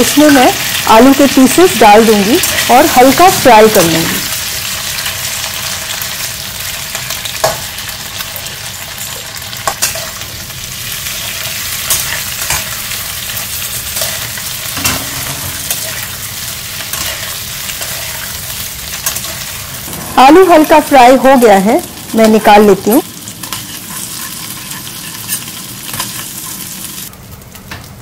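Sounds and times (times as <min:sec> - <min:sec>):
potatoes sizzling in hot oil: 0:00.0 - 0:28.0
metal spatula scraping a pan: 0:13.8 - 0:18.3, 0:23.4 - 0:26.7.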